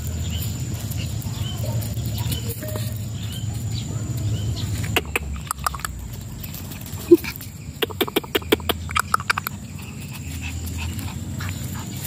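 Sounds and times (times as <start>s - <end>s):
person clicking tongue: 4.9s - 6.0s, 7.8s - 9.5s.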